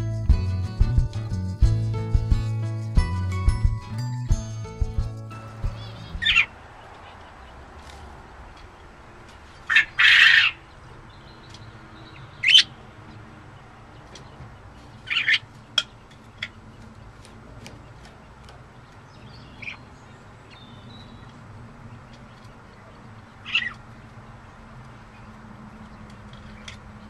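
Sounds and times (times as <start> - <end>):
budgerigar calling: 5.6 - 7.3, 9.6 - 10.8, 12.4 - 12.8, 15.0 - 16.6, 23.4 - 23.8
budgerigar short chirps: 5.8 - 6.5.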